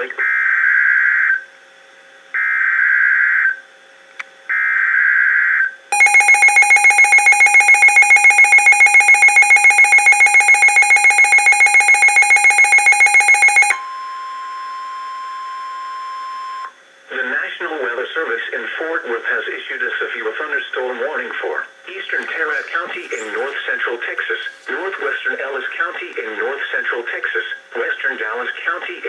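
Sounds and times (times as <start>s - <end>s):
steady warning tone: 4.5s - 19.4s
screeching digital header bursts: 5.3s - 13.8s
radio alarm beeping rapidly: 6.0s - 14.0s.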